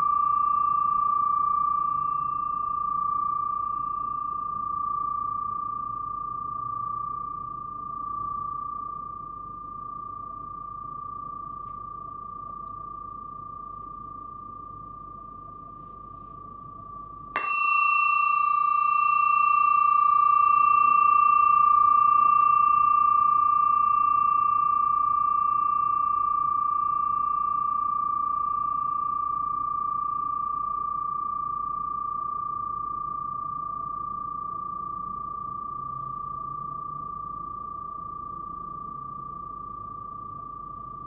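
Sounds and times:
metal plate bell ringing: 0:00.0 - 0:11.0, 0:16.9 - 0:31.7.

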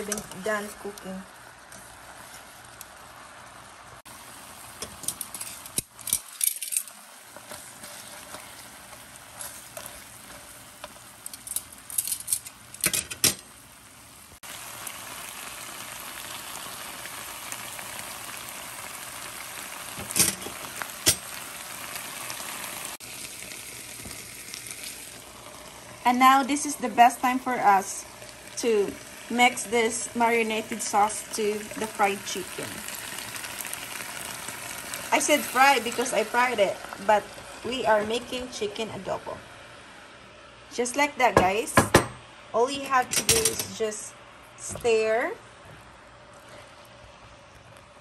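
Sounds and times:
chicken sizzling in hot oil: 0:00.0 - 0:12.0, 0:13.4 - 0:38.8.

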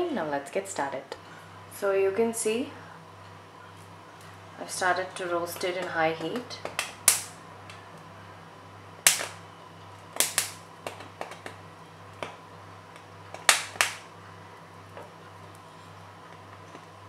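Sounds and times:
corn kernels popping: 0:05.1 - 0:07.3, 0:09.1 - 0:09.4, 0:10.2 - 0:11.6, 0:12.2 - 0:14.1.

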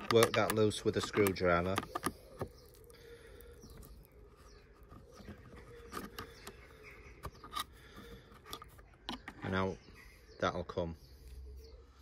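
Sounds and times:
screwdriver scraping plastic: 0:00.0 - 0:02.8.

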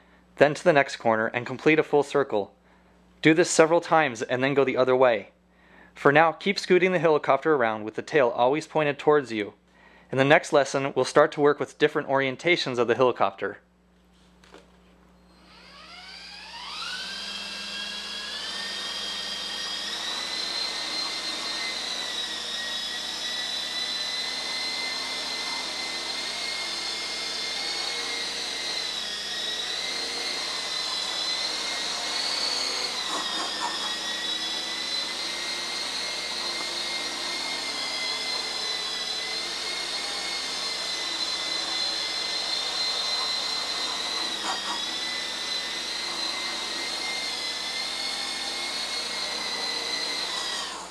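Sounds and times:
rc helicopter motors whining: 0:15.3 - 0:50.9.

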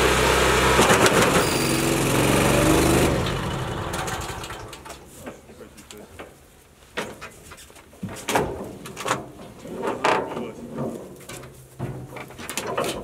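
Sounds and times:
wood chipper cracking log: 0:00.0 - 0:05.0.

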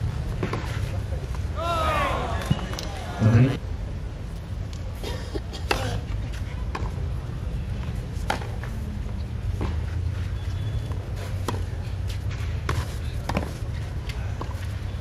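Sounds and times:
tennis ball hitting rackets: 0:00.3 - 0:00.9, 0:08.2 - 0:08.7, 0:11.4 - 0:14.6.

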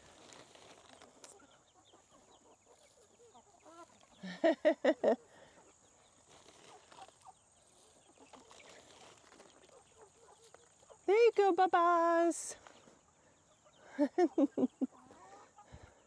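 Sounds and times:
chickens clucking softly: 0:01.3 - 0:08.6, 0:12.7 - 0:16.0
chicken loud clucks: 0:01.4 - 0:04.2, 0:13.0 - 0:16.0.

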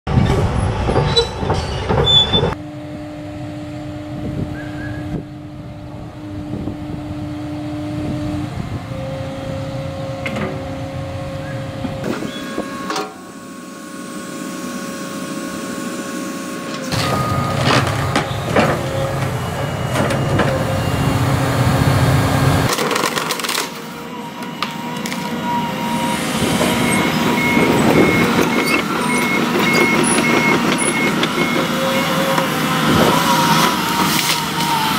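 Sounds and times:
excavator engine and hydraulics: 0:00.1 - 0:34.9.

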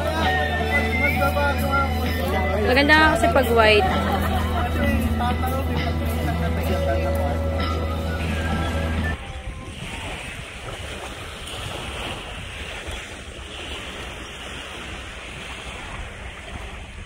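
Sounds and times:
surf washing onto beach: 0:00.0 - 0:17.0
wind on microphone: 0:07.3 - 0:17.0.

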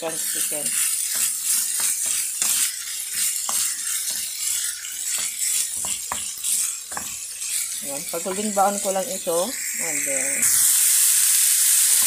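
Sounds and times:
chicken sizzling in hot oil: 0:00.0 - 0:12.0
wooden spoon scraping and tapping pan: 0:00.3 - 0:09.0.

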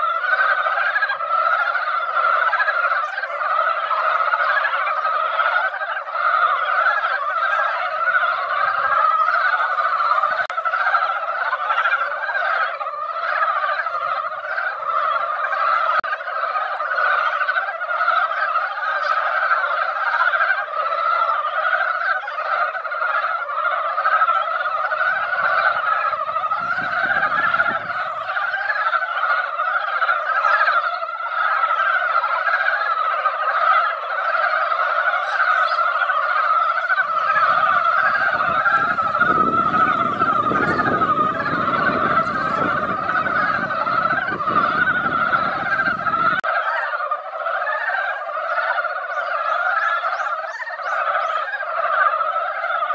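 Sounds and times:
frogs chorus calling: 0:00.0 - 0:52.9.

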